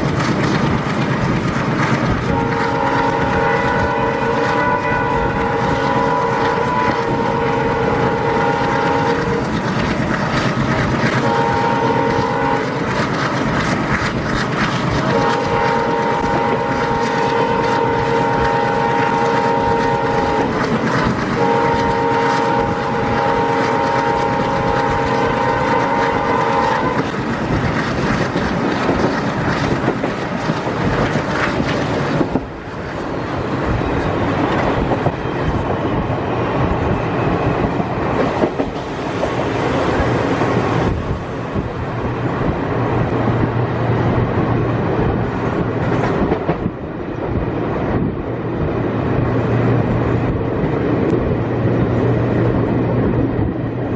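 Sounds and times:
train wheels on rails: 0.0s - 53.9s
diesel locomotive horn blasts: 2.0s - 9.8s, 10.4s - 13.2s, 15.0s - 27.6s.

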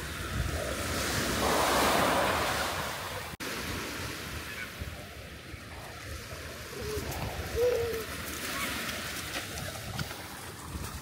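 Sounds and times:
wind rumble on microphone: 0.0s - 4.1s, 4.8s - 11.0s
sea waves breaking: 0.0s - 11.0s.

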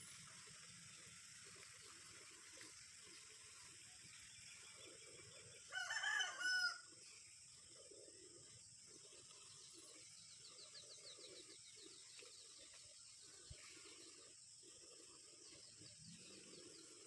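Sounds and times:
rooster crowing: 5.7s - 6.9s.

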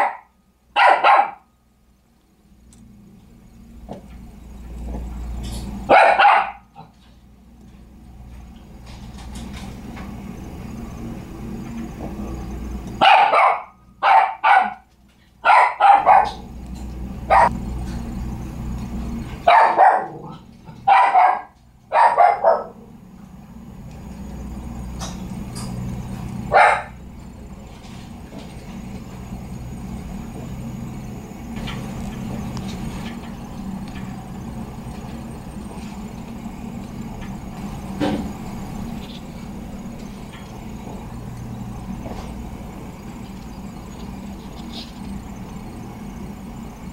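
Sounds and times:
dog barking: 0.0s - 1.5s, 5.9s - 6.9s, 13.0s - 16.5s, 17.3s - 17.5s, 19.4s - 22.8s, 26.5s - 27.0s
steady low hum: 0.0s - 46.9s.

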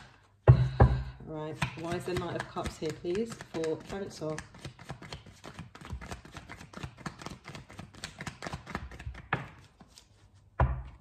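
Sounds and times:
cards shuffling: 1.8s - 10.5s.

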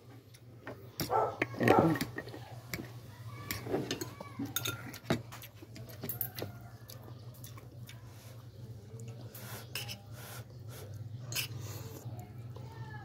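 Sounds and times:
fork scraping a plate: 9.3s - 12.0s.

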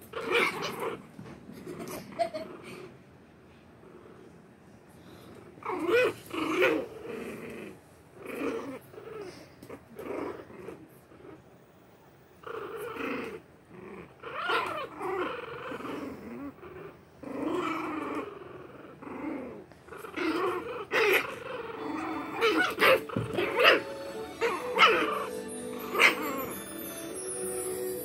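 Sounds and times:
puppies growling: 0.0s - 11.6s, 12.4s - 26.7s
puppies yipping and barking: 20.6s - 26.8s.

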